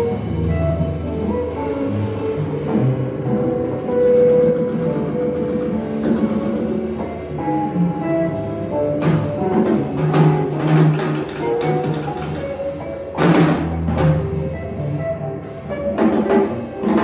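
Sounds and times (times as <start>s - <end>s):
live instrumental band music: 0.0s - 17.0s
drum crash: 3.8s - 14.6s.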